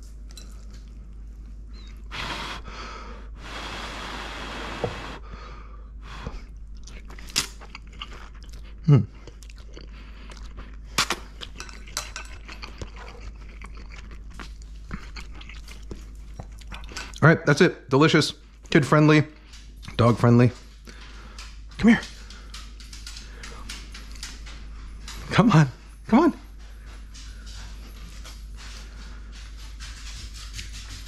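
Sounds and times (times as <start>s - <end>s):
chewing: 0.0s - 2.1s, 6.3s - 17.2s, 19.3s - 25.4s
chopsticks clicking against bowl: 20.9s - 25.2s.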